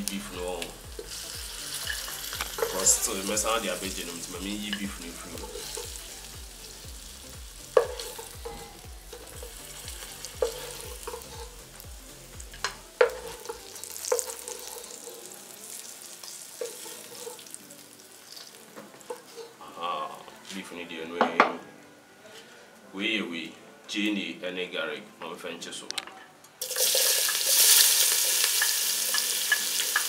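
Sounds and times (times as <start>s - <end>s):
meat sizzling in hot oil: 0.0s - 19.5s, 26.6s - 30.0s
wooden spoon knocking against pot: 7.8s - 8.6s.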